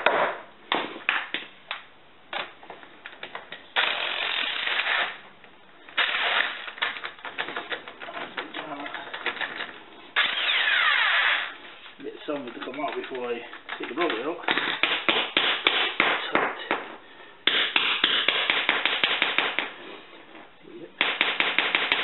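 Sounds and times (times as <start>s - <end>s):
electric impact wrench bursts: 3.8s - 5.2s, 6.0s - 6.8s, 10.2s - 11.5s.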